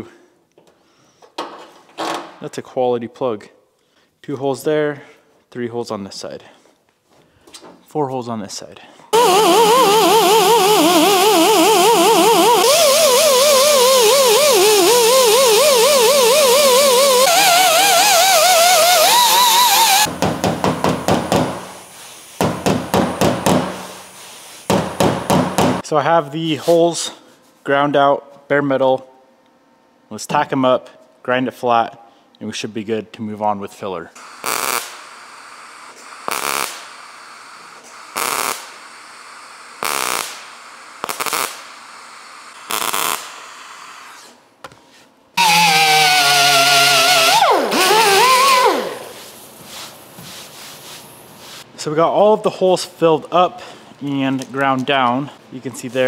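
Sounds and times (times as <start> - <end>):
welder crackling bursts: 9.2 - 20.2, 34.2 - 44.3, 45.4 - 50.1.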